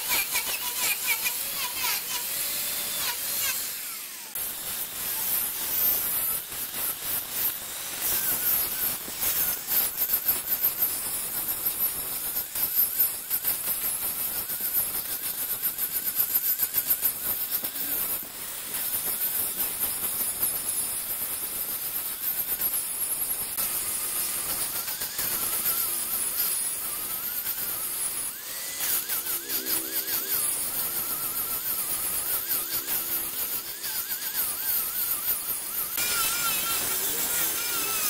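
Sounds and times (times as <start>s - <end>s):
wood lathe turning: 0.0s - 9.8s, 23.6s - 38.0s
tool scraping spinning wood: 0.0s - 10.4s, 23.6s - 38.0s.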